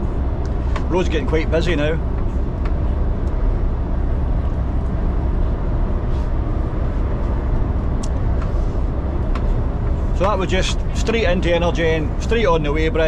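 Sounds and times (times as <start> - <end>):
truck engine rumble: 0.0 - 13.0.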